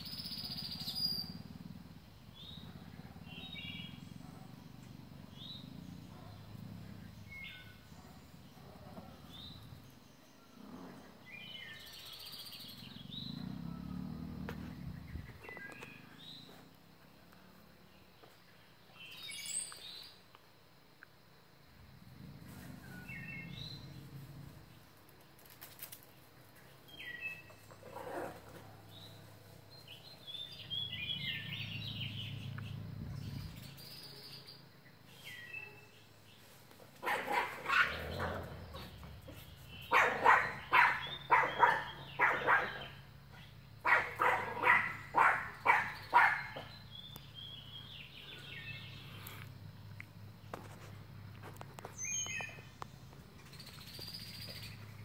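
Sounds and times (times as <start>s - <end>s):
birds chirping: 0.0s - 20.2s, 22.2s - 24.9s, 26.0s - 55.0s
small dogs yapping: 27.6s - 29.0s, 37.0s - 43.1s, 43.8s - 46.8s.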